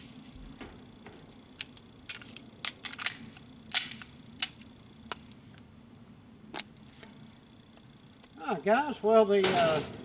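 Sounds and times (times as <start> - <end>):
metallic clicks of pistols: 1.6 - 5.2.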